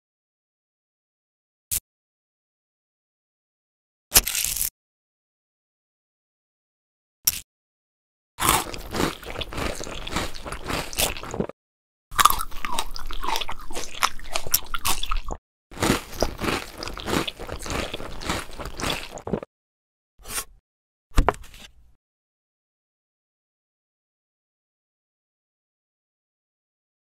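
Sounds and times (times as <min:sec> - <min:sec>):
crunching and chewing: 0:08.4 - 0:19.5.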